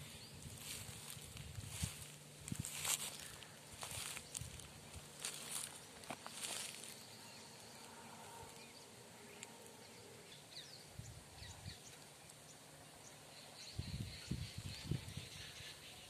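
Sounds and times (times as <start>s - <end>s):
soft footsteps: 0.0s - 7.1s
small birds chirping: 0.0s - 16.0s.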